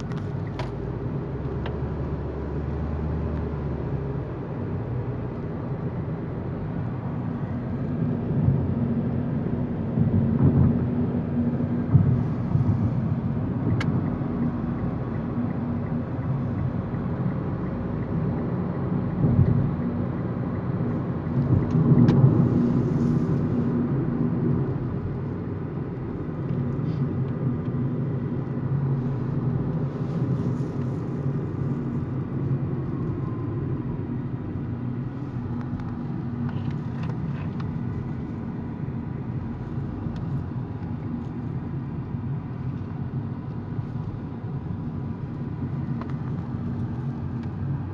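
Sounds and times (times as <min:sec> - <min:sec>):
car engine and road rumble: 0:00.0 - 0:47.9.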